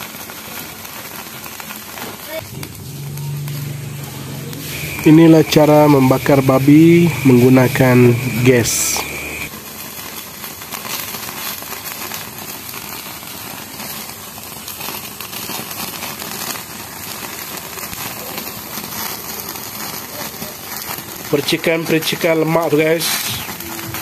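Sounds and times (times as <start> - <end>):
gas burner hiss: 0.6 - 24.0
fat crackling and spitting: 2.3 - 9.5.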